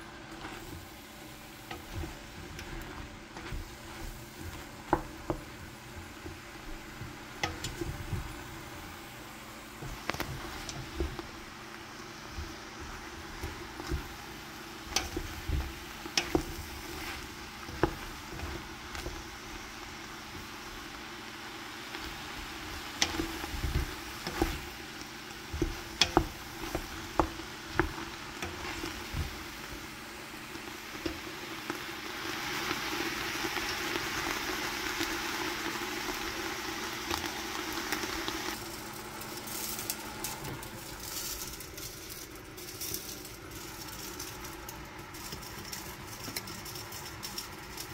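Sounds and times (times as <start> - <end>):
mushrooms sizzling in a pot: 0.0 - 47.9
wooden spoon scraping a pot: 0.1 - 20.9, 22.0 - 30.0, 39.4 - 47.9.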